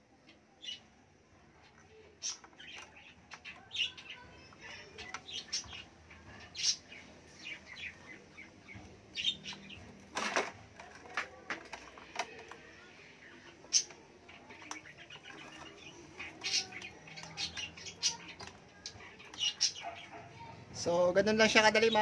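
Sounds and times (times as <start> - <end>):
rustling of wires: 9.4 - 12.9.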